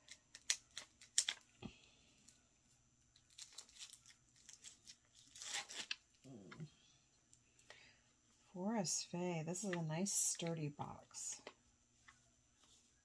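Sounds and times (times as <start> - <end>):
plastic shrink wrap tearing: 0.3 - 1.4, 3.2 - 6.0.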